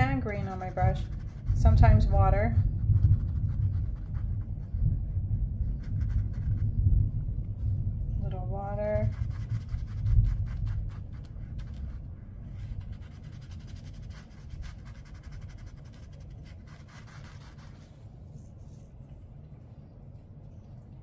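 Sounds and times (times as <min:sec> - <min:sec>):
paintbrush dabbing on paper: 0:00.0 - 0:04.8, 0:05.6 - 0:06.8, 0:08.8 - 0:19.2
thunder rumbling: 0:00.0 - 0:13.7.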